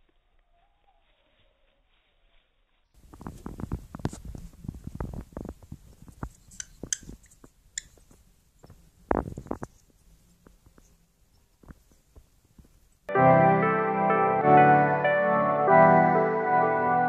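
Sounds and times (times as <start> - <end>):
bird pecking taps and rustles: 3.0 - 12.9.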